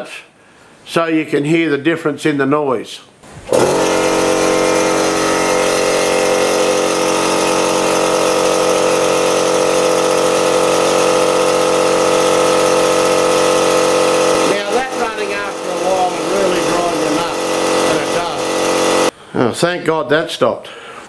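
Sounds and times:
air compressor running: 3.2s - 19.1s.

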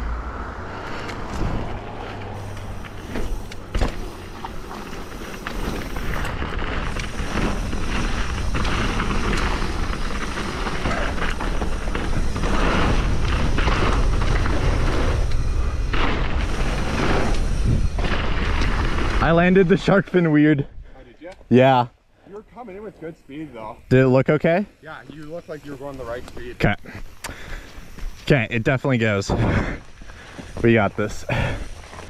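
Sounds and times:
tyre noise on gravel: 0.9s - 20.2s, 23.6s - 32.0s
bike knocking over bumps: 2.4s - 19.5s
wind buffeting microphone: 11.3s - 19.2s.

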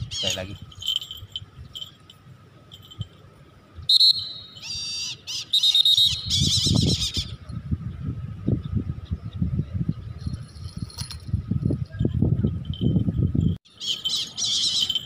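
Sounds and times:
kite high wavering calls: 3.9s - 7.4s, 13.7s - 15.0s.

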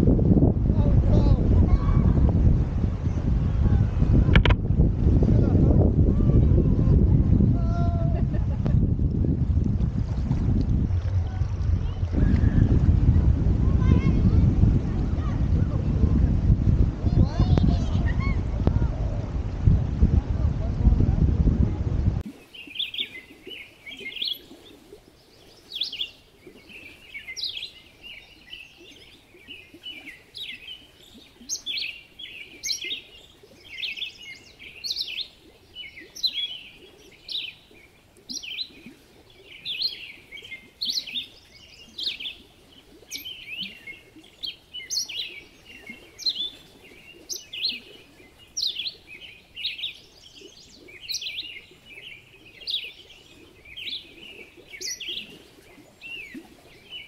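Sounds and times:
birds chirping: 22.2s - 57.0s.

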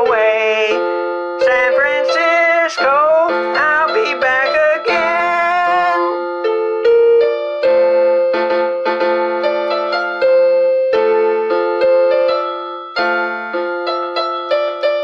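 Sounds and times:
electric piano melody over chords: 0.0s - 15.0s.

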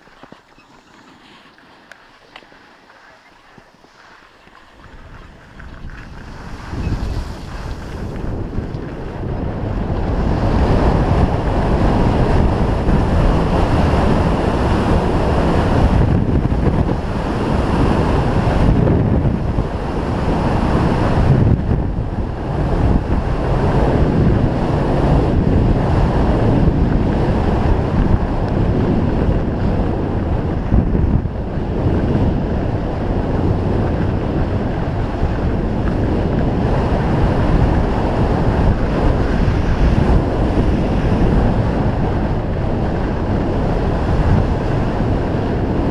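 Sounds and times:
skis scraping on snow: 0.0s - 9.1s
wind buffeting microphone: 0.0s - 45.9s.

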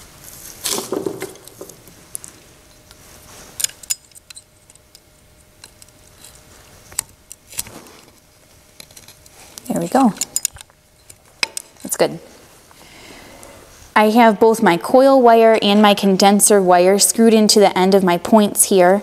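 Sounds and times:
small metal clicks and scrapes: 3.6s - 12.0s.

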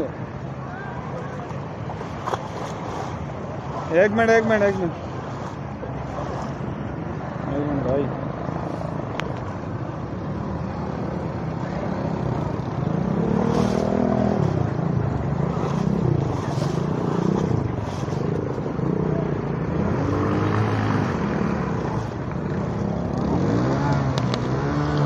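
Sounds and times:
vehicle engine revving: 11.9s - 25.0s.

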